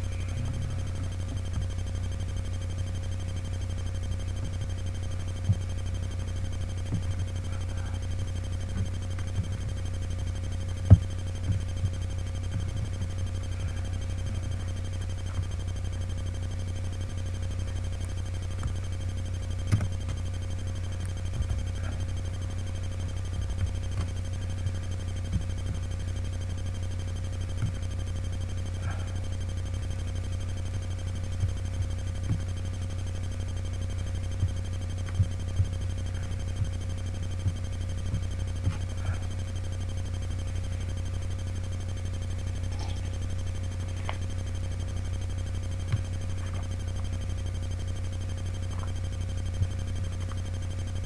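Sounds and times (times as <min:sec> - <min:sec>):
steady low hum: 0:00.0 - 0:51.0
small clicks and light knocks: 0:19.6 - 0:20.2.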